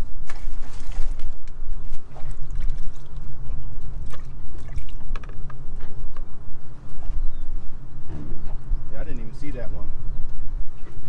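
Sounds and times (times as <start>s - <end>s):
water sloshing and splashing: 0.0s - 5.5s
low rumble: 0.0s - 11.0s.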